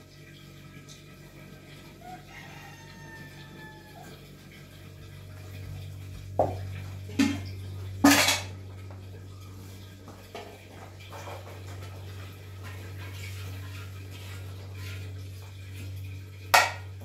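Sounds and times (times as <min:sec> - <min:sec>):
low hum: 0:04.2 - 0:17.0
metal cookware clanking: 0:06.4 - 0:08.6, 0:16.5 - 0:17.0.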